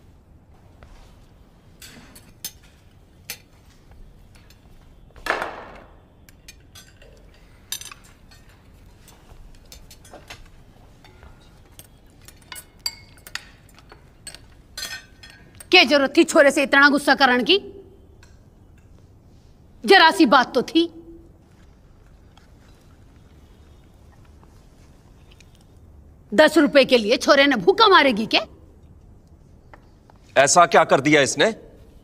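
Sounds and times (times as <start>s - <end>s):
cutlery and dishes clinking: 1.8s - 3.6s, 6.2s - 15.8s.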